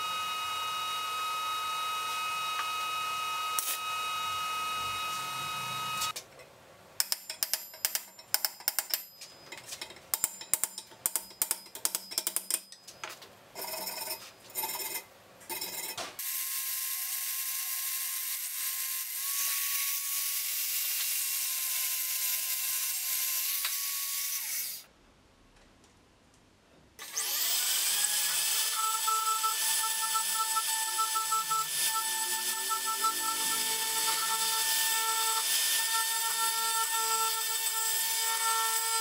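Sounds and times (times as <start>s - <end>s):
rotary tool whining: 27.0s - 39.0s.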